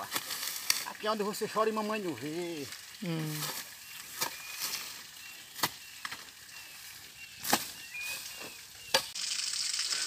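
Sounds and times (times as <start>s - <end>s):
scrape and rustle of grass: 0.0s - 0.9s, 3.3s - 5.8s, 6.5s - 8.7s
hoe striking soil: 5.6s - 6.3s, 7.4s - 9.2s.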